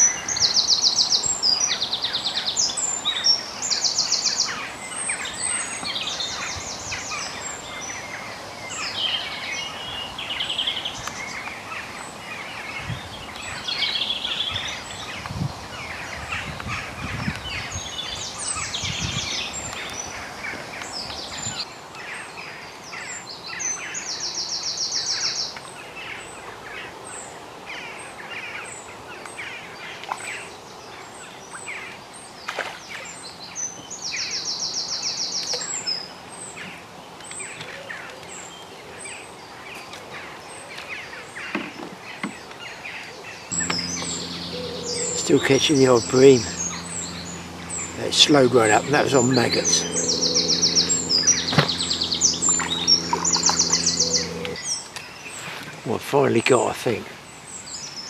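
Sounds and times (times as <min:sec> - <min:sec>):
rapid buzzing trill: 0:43.6 - 0:54.6.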